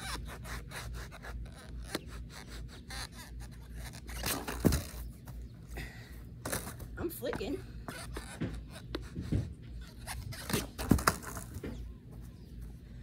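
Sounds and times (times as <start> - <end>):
skateboard thudding on grass: 4.1 - 5.4, 8.2 - 11.9.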